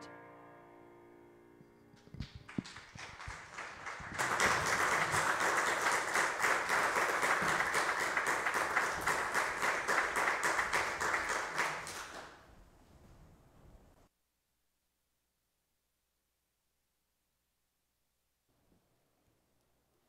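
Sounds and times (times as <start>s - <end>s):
crowd applauding: 2.2s - 12.4s.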